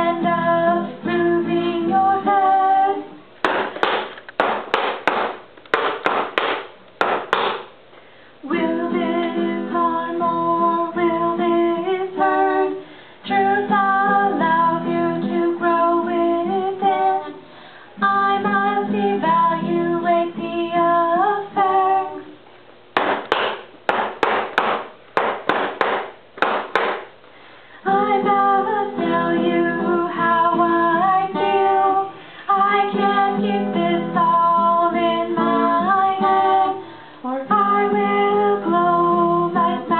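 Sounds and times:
women singing: 0.0s - 3.2s, 8.4s - 22.4s, 27.8s - 39.9s
stick knocking: 3.4s - 7.7s, 23.0s - 27.1s.

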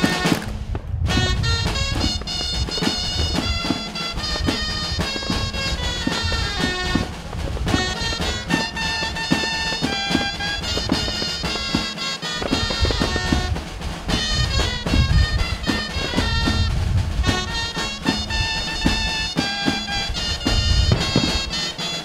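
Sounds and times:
nasal reed melody: 0.0s - 22.0s
steady drum beat: 0.0s - 22.0s.

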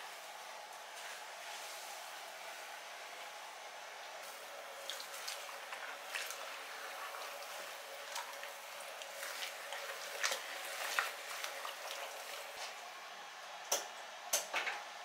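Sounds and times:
wet cloths squishing in water: 4.3s - 12.8s
squelches and splashes: 4.7s - 12.8s.

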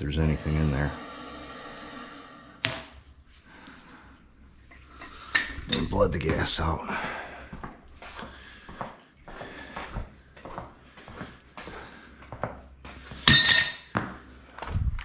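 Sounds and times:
footsteps on rubber floor: 6.0s - 13.2s.

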